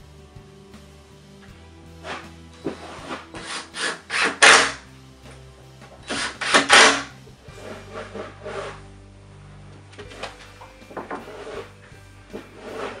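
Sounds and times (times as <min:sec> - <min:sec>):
background music: 0:00.0 - 0:13.0
wood rasping and scraping: 0:01.9 - 0:13.0.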